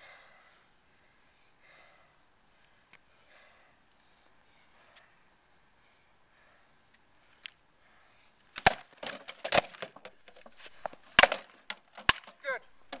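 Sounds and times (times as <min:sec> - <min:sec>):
stick swords hitting wooden shields: 0:08.6 - 0:13.0.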